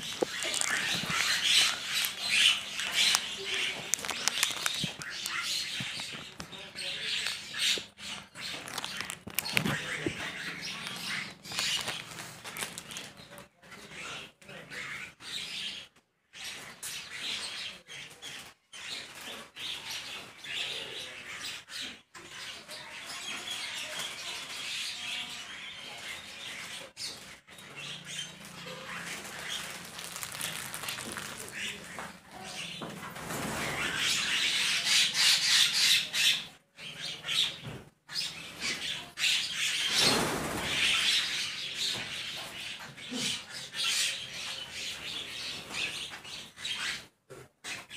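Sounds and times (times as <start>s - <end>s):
wings flapping: 0.0s - 6.6s, 39.9s - 41.0s
birds chattering and calling: 0.0s - 47.9s.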